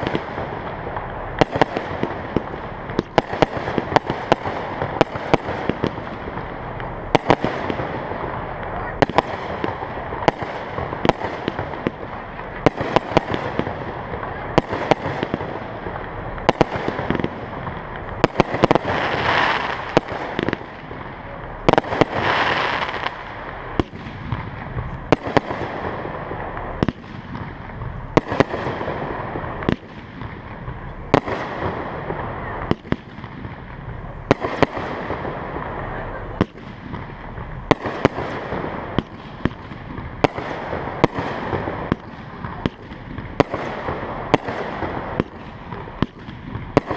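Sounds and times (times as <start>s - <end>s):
fireworks bangs: 0.0s - 46.9s
fireworks crackling hiss: 0.0s - 46.9s.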